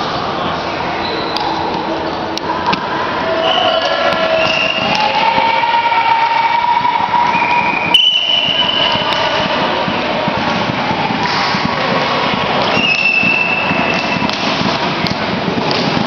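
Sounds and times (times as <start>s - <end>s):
long steady tones: 1.6s - 16.0s
hand slapping shuttlecock: 8.3s - 16.0s.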